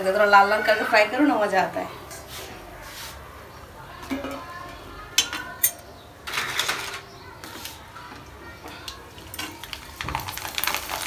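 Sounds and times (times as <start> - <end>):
metal tongs clinking on pan: 5.2 - 5.8.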